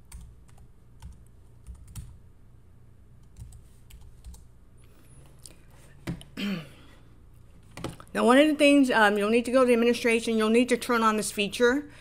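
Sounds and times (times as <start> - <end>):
computer keyboard typing: 0.0 - 2.2, 3.2 - 4.5.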